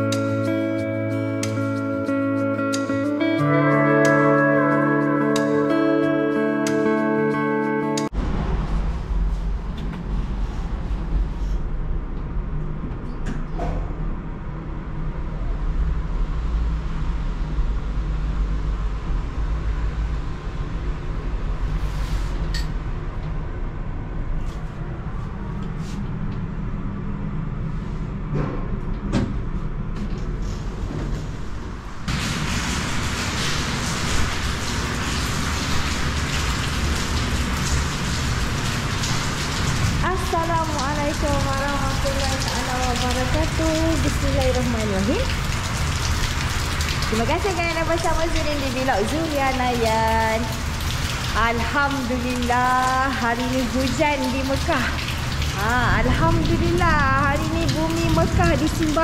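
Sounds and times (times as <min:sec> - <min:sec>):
lift low rumble and hum: 0:08.1 - 0:59.0
rain on stone paving: 0:32.1 - 0:59.0.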